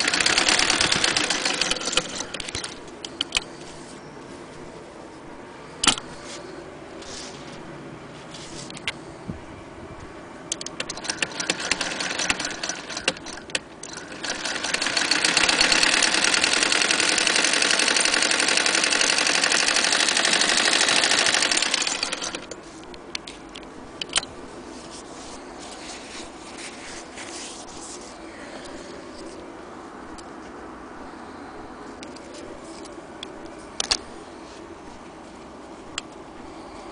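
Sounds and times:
sewing machine clatter: 0.0 - 2.8, 10.7 - 22.6.

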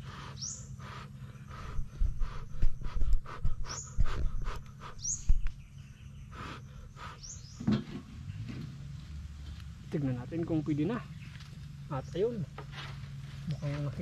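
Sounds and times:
person blowing breath puffs: 0.0 - 5.4, 6.3 - 7.4
bird chirps: 0.1 - 8.7.

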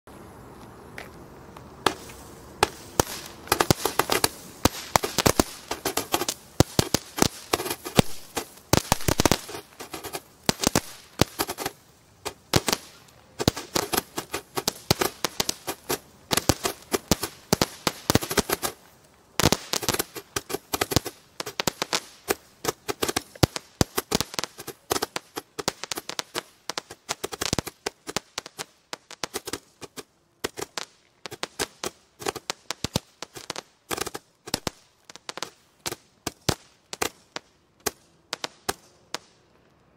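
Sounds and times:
firework firing rapid reports: 2.6 - 18.8, 19.4 - 34.8.

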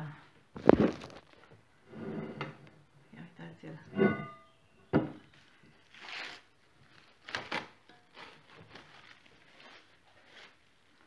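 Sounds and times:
soft rustle: 8.2 - 11.0.

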